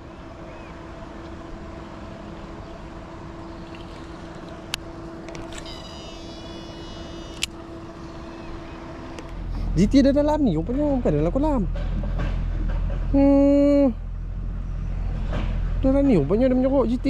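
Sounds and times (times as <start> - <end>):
machine hum: 0.0 - 17.0
thin high whine: 3.3 - 9.9
sharp click: 7.3 - 7.6.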